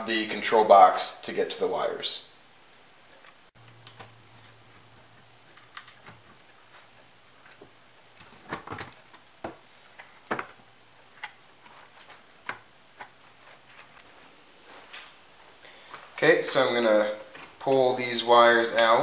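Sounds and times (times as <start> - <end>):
clicks and knocks of handled wires: 3.2 - 14.2, 17.3 - 17.9.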